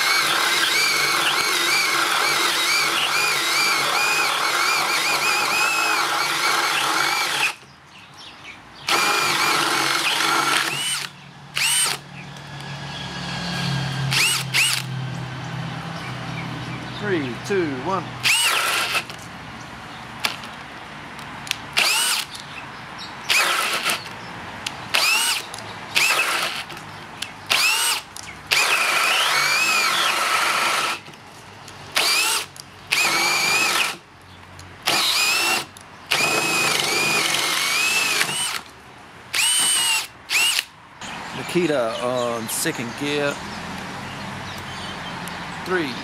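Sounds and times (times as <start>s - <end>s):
cordless drill motor whine: 0.0s - 7.6s, 8.9s - 12.0s, 14.1s - 14.9s, 18.2s - 19.2s, 21.8s - 22.3s, 23.3s - 24.1s, 25.0s - 26.8s, 27.5s - 31.1s, 32.0s - 34.0s, 34.9s - 38.7s, 39.3s - 40.7s.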